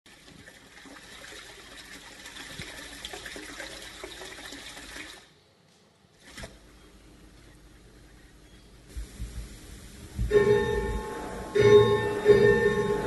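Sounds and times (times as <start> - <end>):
running splashing water: 0.1 - 5.3.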